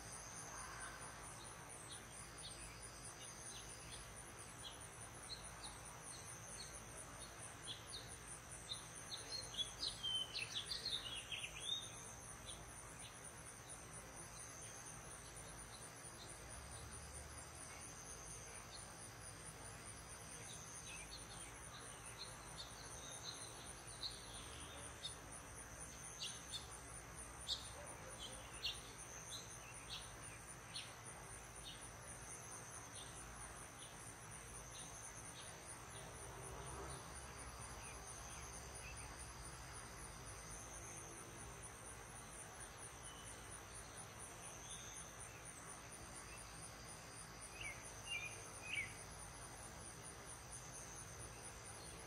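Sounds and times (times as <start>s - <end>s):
insects trilling: 0.0s - 52.0s
bird chirping song: 1.4s - 13.2s, 27.4s - 31.0s.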